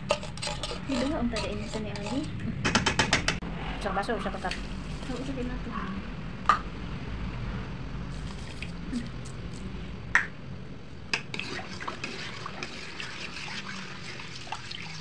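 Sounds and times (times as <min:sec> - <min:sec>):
liquid sloshing in a pot: 0:00.0 - 0:02.4, 0:11.2 - 0:15.0.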